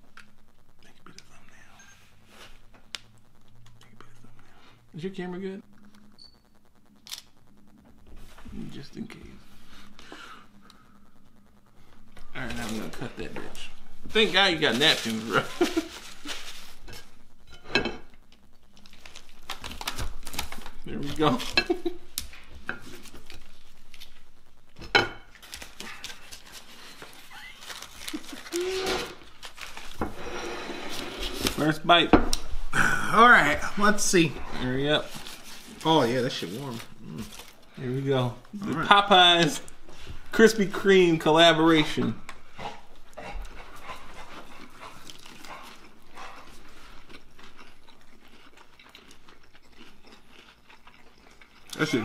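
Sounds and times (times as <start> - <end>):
people chewing crunchy food: 0.0 - 31.7, 32.4 - 41.0, 42.2 - 52.0
paper wrapper handling: 14.2 - 16.8, 18.8 - 21.6, 25.3 - 28.6, 29.2 - 30.0.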